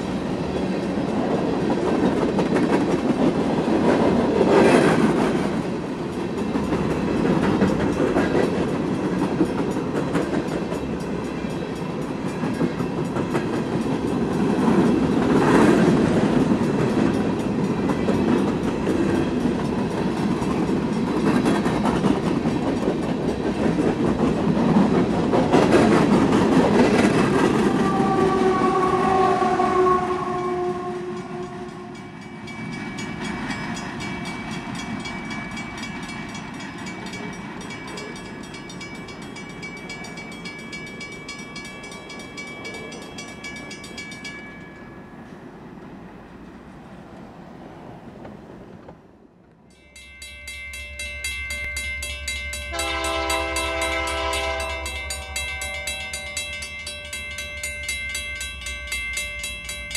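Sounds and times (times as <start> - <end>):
train cars rumbling on rails: 0.0 - 59.9
train horn: 27.5 - 32.3, 52.6 - 56.4.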